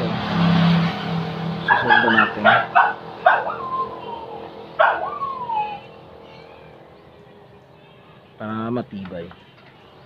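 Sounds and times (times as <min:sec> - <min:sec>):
dog barking: 0:01.7 - 0:03.8, 0:04.8 - 0:05.2
dog whining: 0:01.8 - 0:06.8.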